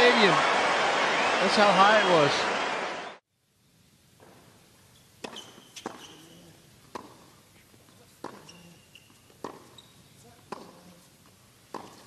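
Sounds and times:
shoe squeaks on court: 0:05.0 - 0:06.5, 0:08.3 - 0:10.2
racket hitting tennis ball: 0:05.2 - 0:06.3, 0:06.9 - 0:07.4, 0:08.2 - 0:09.8, 0:10.4 - 0:10.9, 0:11.6 - 0:12.0.

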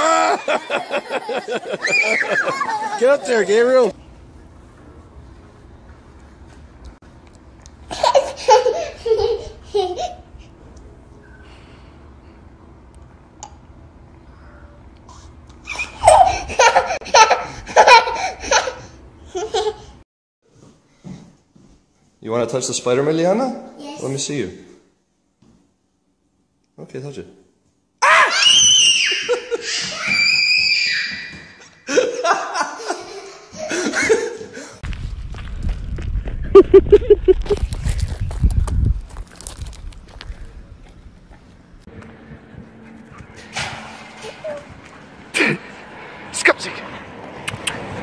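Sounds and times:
toddler laughing: 0:00.0 - 0:03.6, 0:07.9 - 0:10.3, 0:15.6 - 0:20.0, 0:31.6 - 0:34.6
small child shrieking: 0:01.8 - 0:02.6, 0:28.0 - 0:31.5.

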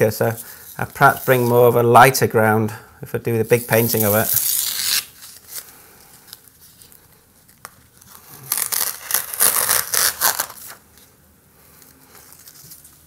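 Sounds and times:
tape ripping off paper: 0:03.5 - 0:05.7, 0:07.5 - 0:10.8
tape rustling: 0:03.5 - 0:11.1, 0:11.8 - 0:13.0.

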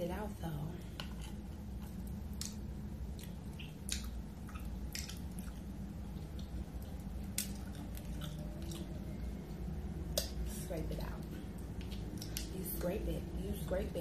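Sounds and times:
steady low hum: 0:00.0 - 0:14.0
wet eating clicks and smacks: 0:00.9 - 0:10.6, 0:11.2 - 0:12.6.

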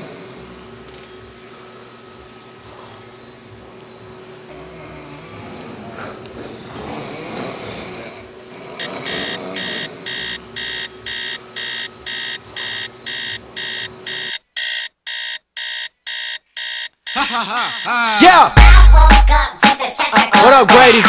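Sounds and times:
alarm clock beeping: 0:08.8 - 0:18.6.

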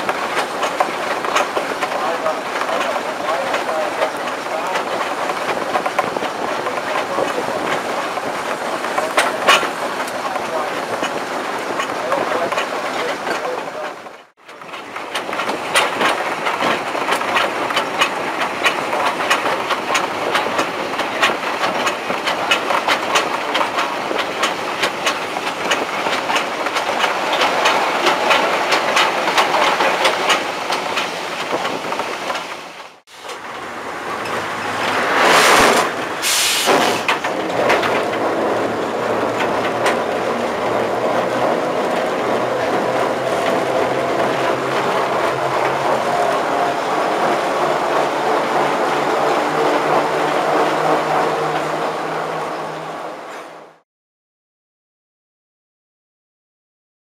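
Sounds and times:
wheels clicking over rail joints: 0:00.0 - 0:53.8
diesel engine running: 0:32.6 - 0:53.8
loud rushing noise: 0:33.1 - 0:53.8.

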